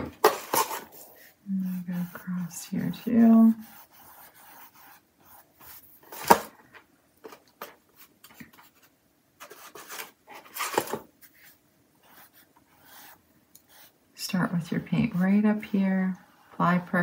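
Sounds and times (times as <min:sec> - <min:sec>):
paintbrush scratching on canvas: 0:00.8 - 0:06.0, 0:11.2 - 0:14.0.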